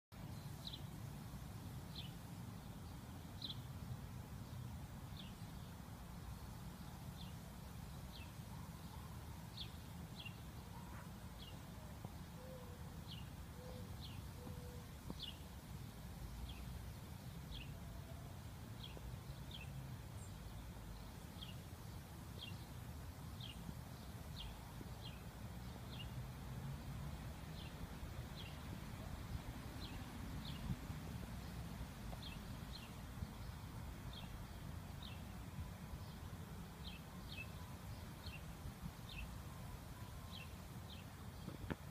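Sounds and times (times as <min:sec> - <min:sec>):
bird chirping: 0:36.8 - 0:41.8.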